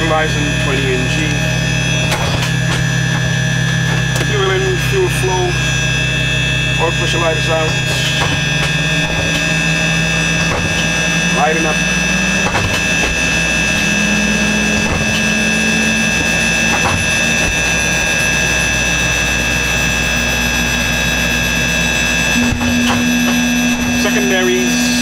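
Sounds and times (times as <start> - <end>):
turboprop engine whine: 0.0 - 25.0.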